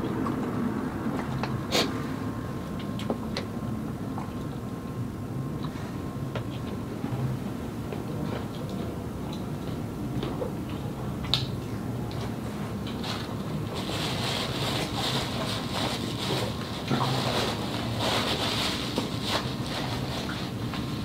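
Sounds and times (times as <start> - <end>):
paper napkin rustling: 13.0 - 21.0.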